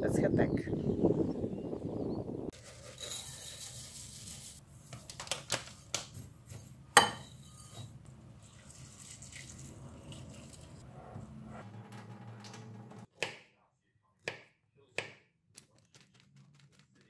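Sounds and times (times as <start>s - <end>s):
kitchenware clinking against bowl: 6.5s - 8.0s.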